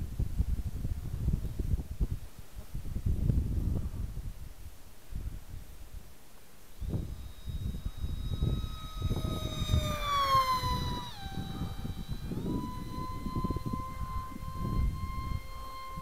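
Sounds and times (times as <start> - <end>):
wind rumbling on microphone: 0.0 - 6.2, 6.8 - 16.0
electric motor propeller whine: 6.7 - 16.0.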